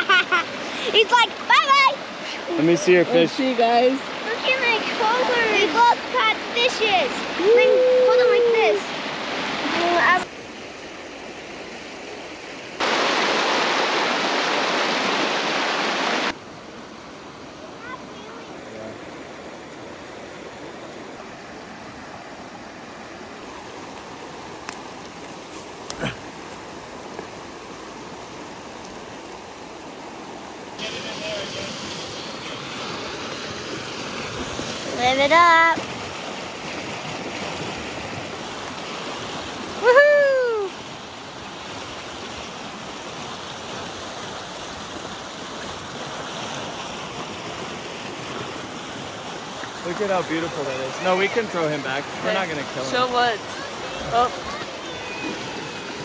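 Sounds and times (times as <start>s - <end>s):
mountain stream rushing: 0.0s - 56.0s
person crying out: 39.8s - 40.8s.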